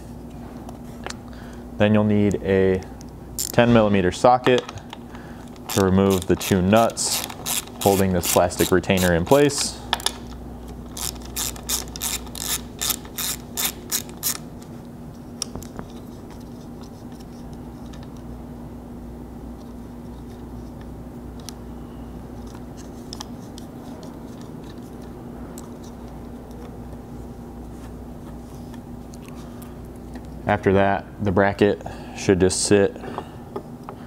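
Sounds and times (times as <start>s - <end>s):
steady low hum: 0.0s - 34.0s
socket ratchet clicking: 3.4s - 3.6s, 5.6s - 9.4s, 10.9s - 14.5s.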